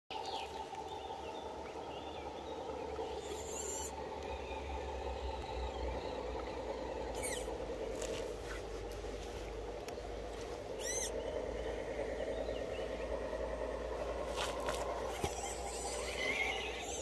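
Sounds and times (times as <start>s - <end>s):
birds chirping: 0.1s - 17.0s
toy car electric motor whirring: 3.2s - 4.0s, 7.1s - 8.3s, 10.8s - 11.2s, 14.3s - 17.0s.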